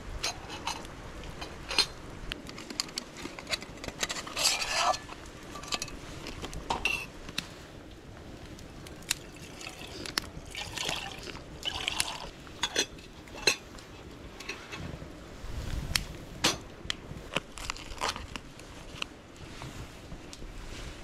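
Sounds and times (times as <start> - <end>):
liquid pouring into pot: 9.2 - 12.3.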